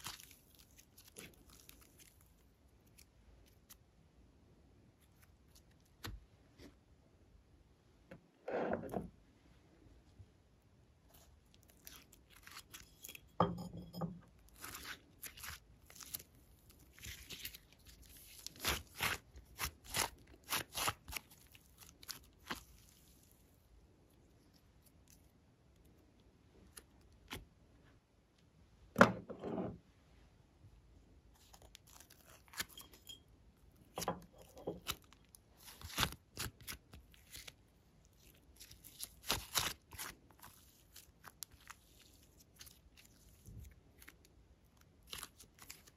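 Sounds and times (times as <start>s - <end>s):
slime crackling and popping: 34.8s - 45.9s.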